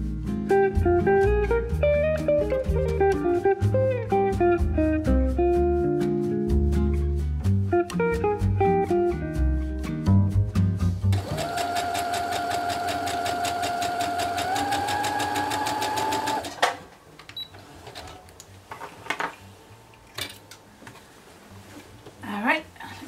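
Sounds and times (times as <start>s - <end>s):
sewing machine stitching: 11.1s - 16.7s
sewing machine stopping click: 11.2s - 16.6s.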